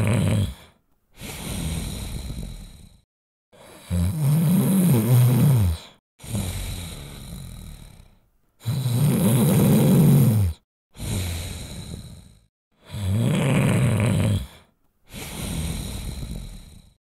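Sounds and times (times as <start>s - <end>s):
person snoring: 0.0s - 17.0s
breathy exhale: 0.4s - 4.0s, 5.5s - 8.2s, 11.0s - 13.0s, 14.4s - 17.0s.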